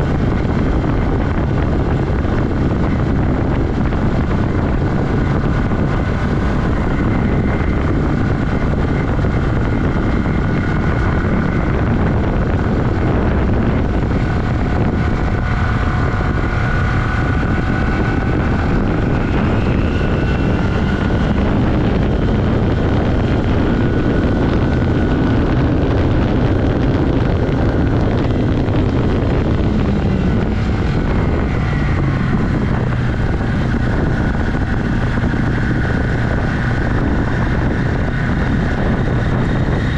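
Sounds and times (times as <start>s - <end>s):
motorcycle engine running: 0.0s - 39.9s
wind rush on microphone: 0.0s - 39.9s.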